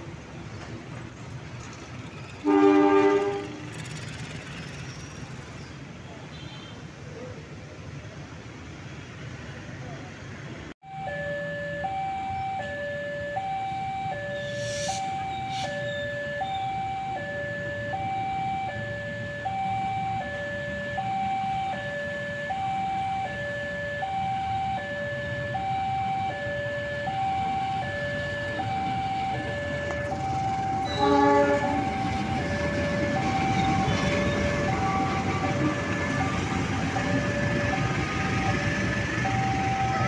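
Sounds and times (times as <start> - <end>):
diesel locomotive rumble: 0.0 - 6.0, 11.0 - 40.0
level crossing two-tone alarm: 10.8 - 40.0.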